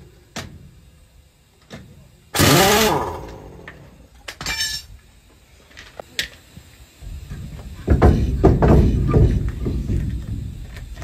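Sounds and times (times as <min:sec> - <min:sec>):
sharp metallic clinks and knocks: 0:04.2 - 0:05.0.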